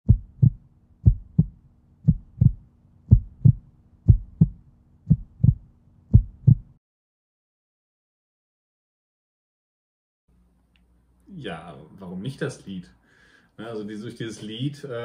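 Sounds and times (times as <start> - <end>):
heartbeat thumps: 0.0 - 6.8
faint low hum: 0.1 - 6.8.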